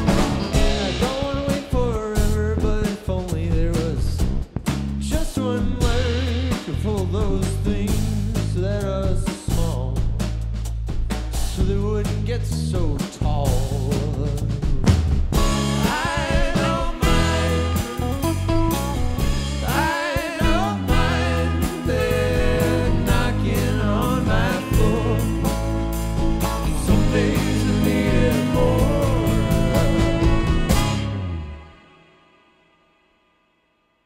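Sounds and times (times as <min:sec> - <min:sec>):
man singing lead vocal: 0:00.0 - 0:04.2, 0:05.0 - 0:10.3, 0:11.5 - 0:14.8, 0:15.5 - 0:18.3, 0:19.5 - 0:25.7, 0:26.6 - 0:31.0
funk band playing: 0:00.0 - 0:32.0
saxophone: 0:15.4 - 0:32.6.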